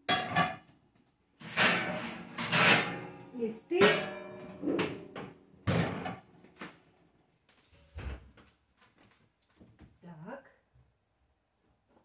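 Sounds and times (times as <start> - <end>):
cupboard doors and cookware clattering: 0.0 - 0.8, 1.4 - 6.8.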